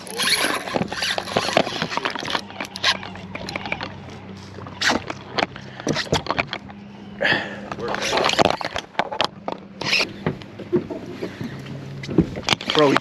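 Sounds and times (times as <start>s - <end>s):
fishing reel clicks and rattles: 0.0s - 4.0s.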